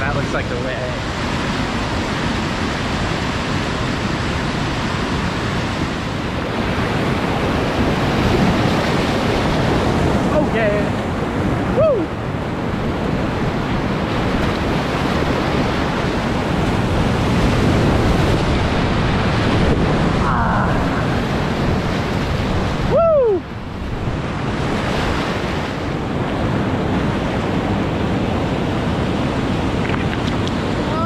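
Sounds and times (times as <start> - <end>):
person whooping: 11.7 - 12.1, 20.2 - 21.0, 22.8 - 23.5
whitewater rapids rushing: 13.9 - 26.0, 29.2 - 31.0.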